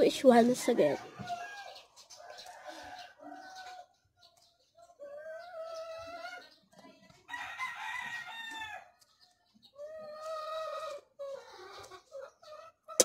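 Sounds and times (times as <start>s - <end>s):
rooster crowing: 7.3s - 8.9s.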